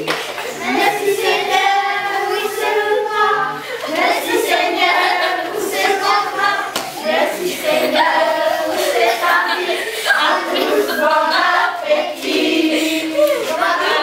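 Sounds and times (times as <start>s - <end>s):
hand claps: 0.0s - 0.5s, 6.7s - 7.0s
children and adults singing: 0.0s - 14.0s.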